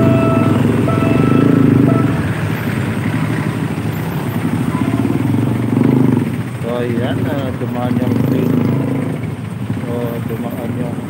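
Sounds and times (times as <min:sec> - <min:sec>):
steady pitched tone: 0:00.0 - 0:02.7
motorcycles: 0:00.0 - 0:11.0
street traffic: 0:00.0 - 0:11.0
train passing with heavy rumble: 0:00.0 - 0:11.0.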